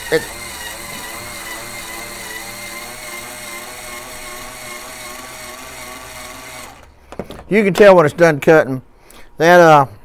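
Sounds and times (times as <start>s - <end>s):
power drill motor whine: 0.0s - 7.0s.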